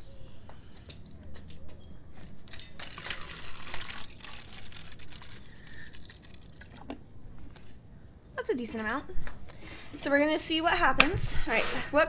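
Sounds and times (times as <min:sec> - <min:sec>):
liquid pouring into plastic bottle: 0:02.8 - 0:07.7.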